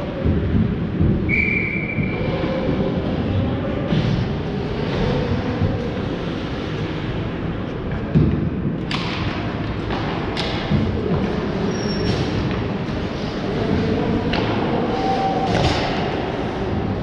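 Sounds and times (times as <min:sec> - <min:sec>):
hockey sticks and puck clacking: 0:07.9 - 0:17.0.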